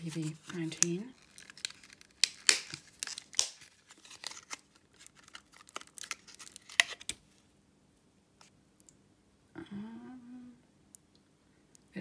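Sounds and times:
packaging crinkling and crackling: 0:00.0 - 0:07.2.

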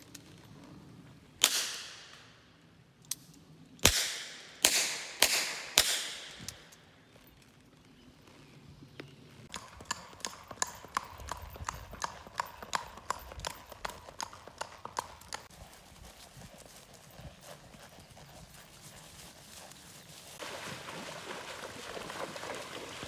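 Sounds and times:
horse hoofbeats clip-clopping: 0:07.1 - 0:23.0.

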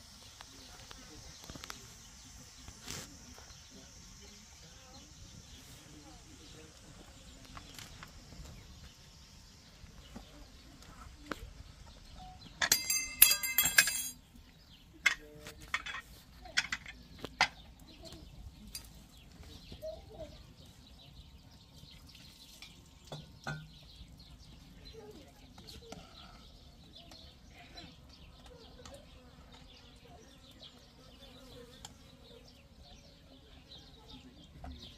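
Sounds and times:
metal pots and lids clanking: 0:12.6 - 0:14.2, 0:22.6 - 0:23.8.

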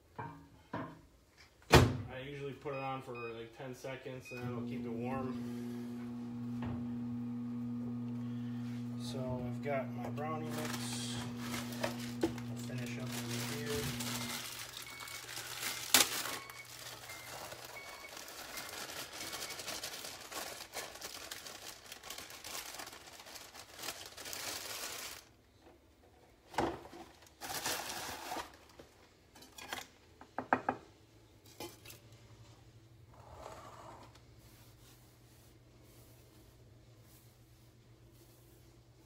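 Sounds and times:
bag crinkling: 0:10.3 - 0:25.3, 0:27.2 - 0:28.7.

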